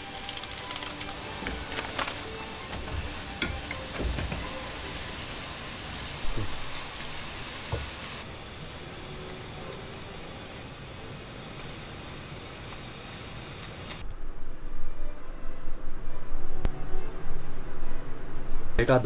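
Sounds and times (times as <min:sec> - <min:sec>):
water boiling and hissing: 0:00.0 - 0:14.0.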